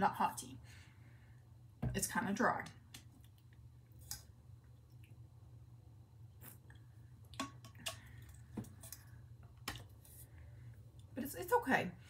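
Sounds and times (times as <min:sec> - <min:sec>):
person drinking: 0:06.4 - 0:09.3.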